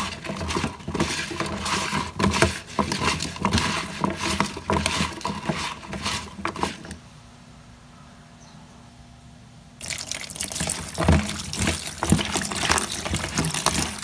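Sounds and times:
hands rubbing food in plastic basin: 0.0 - 7.0, 9.8 - 14.0.

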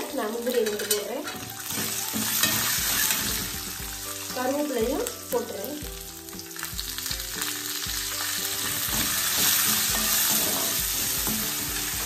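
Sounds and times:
food sizzling in hot oil: 0.0 - 12.0
metal spatula stirring: 0.2 - 5.2, 8.4 - 12.0.

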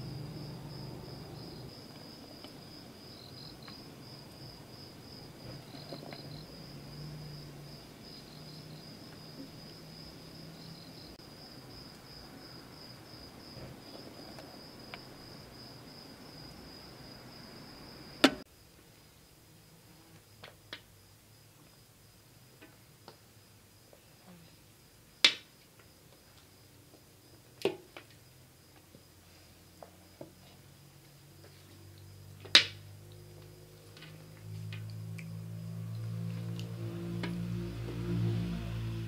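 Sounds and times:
low hum: 0.0 - 1.9, 32.8 - 39.0
cricket trilling: 0.0 - 18.4.

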